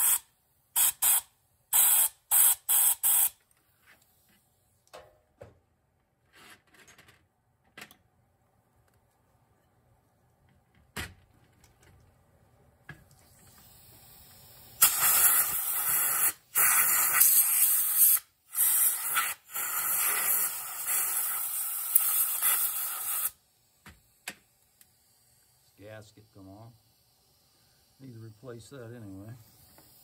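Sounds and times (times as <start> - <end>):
compressed air hissing: 0.0 - 3.4, 13.1 - 30.0.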